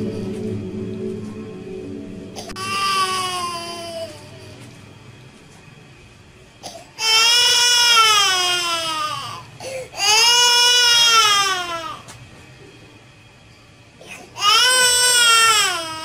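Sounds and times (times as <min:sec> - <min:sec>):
baby crying: 0:02.4 - 0:04.4.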